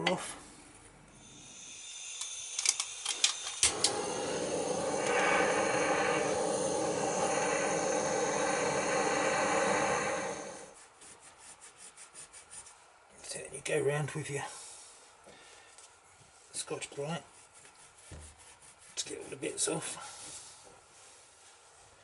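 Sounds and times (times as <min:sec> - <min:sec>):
blowtorch hissing: 0:01.1 - 0:10.8.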